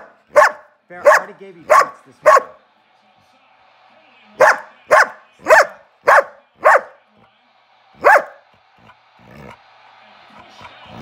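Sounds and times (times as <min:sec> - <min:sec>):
dog barking: 0:00.0 - 0:02.6, 0:04.4 - 0:07.0, 0:08.0 - 0:08.4.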